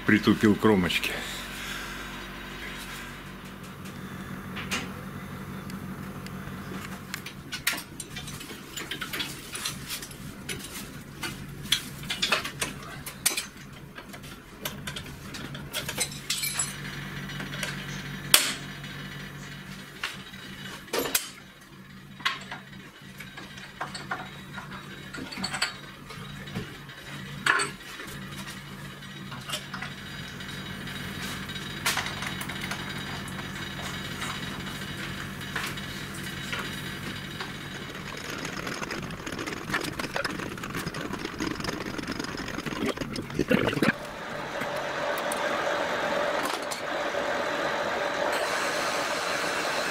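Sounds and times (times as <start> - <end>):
steady low hum: 35.6 - 45.2.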